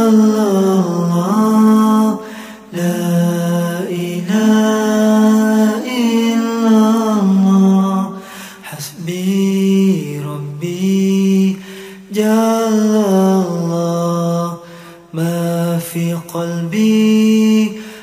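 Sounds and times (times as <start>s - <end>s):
man chanting: 0.0s - 18.0s
breath: 2.2s - 2.7s, 8.2s - 8.7s, 11.6s - 12.1s, 14.6s - 15.1s, 17.8s - 18.0s.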